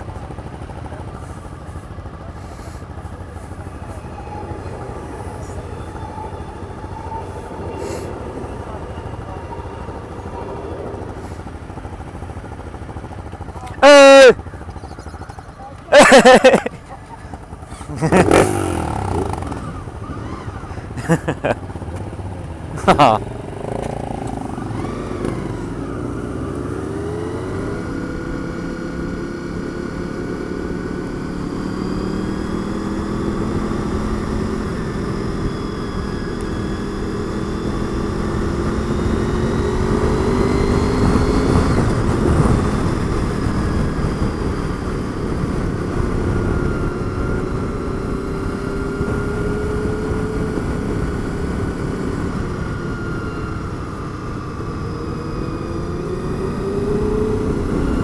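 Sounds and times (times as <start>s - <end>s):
motorcycle engine accelerating: 0.0s - 58.0s
wind rushing over microphone: 32.0s - 53.8s.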